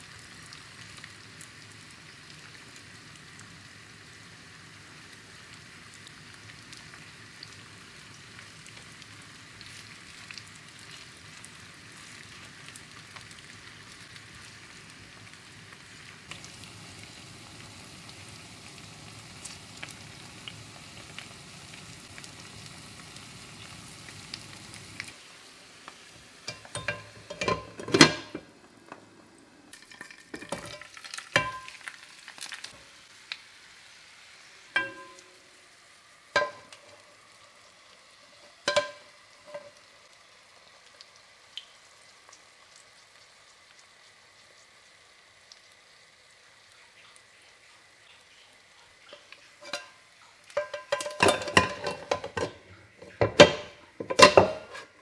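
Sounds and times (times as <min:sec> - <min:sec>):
potatoes sizzling in oil: 0:00.0 - 0:55.0
metal pans clanking: 0:26.5 - 0:28.5, 0:29.9 - 0:31.8, 0:34.8 - 0:35.4, 0:36.4 - 0:37.1, 0:38.6 - 0:39.8, 0:49.1 - 0:55.0.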